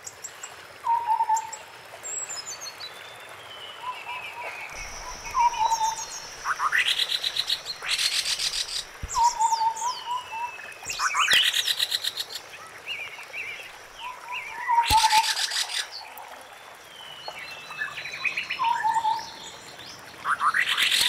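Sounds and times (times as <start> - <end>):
bird fluty hoots: 4.8 - 10.3.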